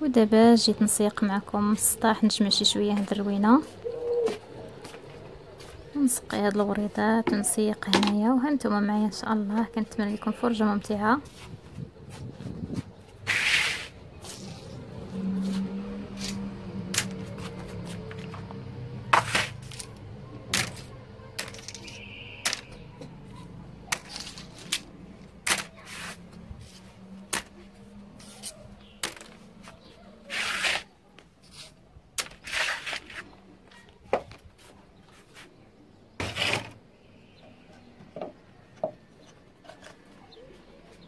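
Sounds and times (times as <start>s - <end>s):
clothespins rattling: 19.6s - 22.7s
plastic clothespins clicking: 19.7s - 22.8s.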